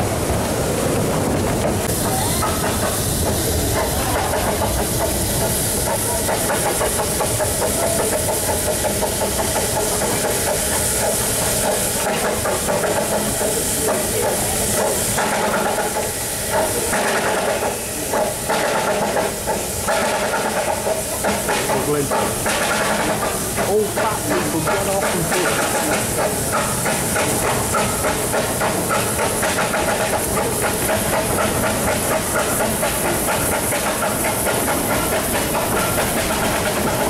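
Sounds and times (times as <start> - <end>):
steam train hiss and rumble: 0.0 - 37.0
wheels clicking on track: 0.2 - 37.0.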